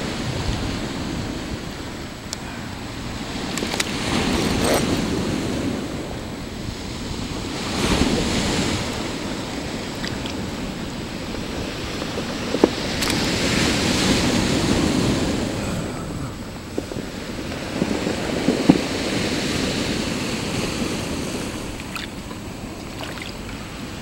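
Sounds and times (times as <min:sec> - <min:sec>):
ocean surf washing in: 0:00.0 - 0:24.0
wind buffeting microphone: 0:00.0 - 0:24.0
handling clicks and knocks: 0:03.5 - 0:05.0.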